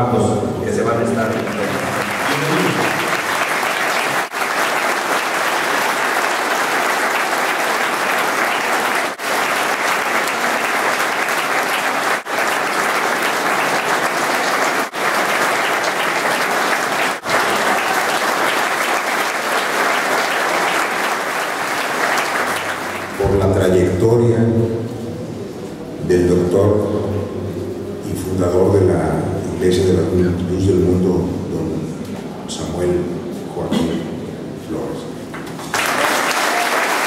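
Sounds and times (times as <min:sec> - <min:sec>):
audience applauding: 0:00.8 - 0:23.4, 0:35.3 - 0:37.0.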